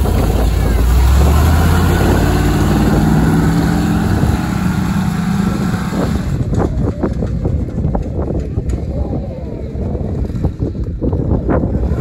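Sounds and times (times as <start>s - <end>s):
truck engine driving off: 0.0s - 8.8s.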